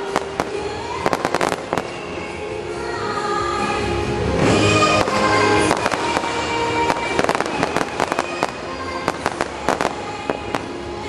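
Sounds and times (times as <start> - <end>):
fireworks crackling and popping: 0.0 - 2.1, 4.4 - 10.8
music with held notes: 0.0 - 11.0.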